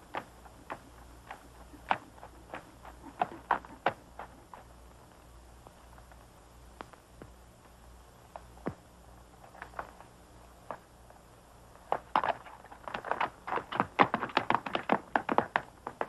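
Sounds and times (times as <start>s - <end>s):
horse hoofbeats: 0.0s - 4.8s, 11.9s - 16.0s
faint steady hum and hiss: 0.0s - 16.0s.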